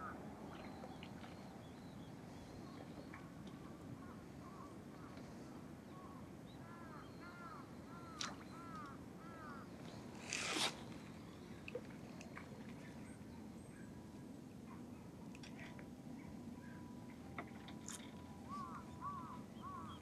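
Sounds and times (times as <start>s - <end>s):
noisy rustle: 9.9s - 11.1s.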